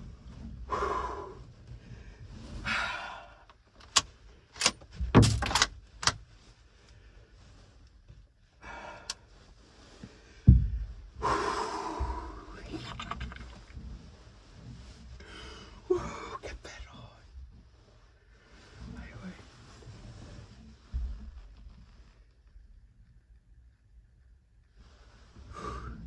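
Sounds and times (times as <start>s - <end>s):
loud gasping breaths: 0.7s - 3.4s, 11.2s - 12.5s
clicks and knocks of handling: 3.5s - 6.2s, 12.8s - 13.8s.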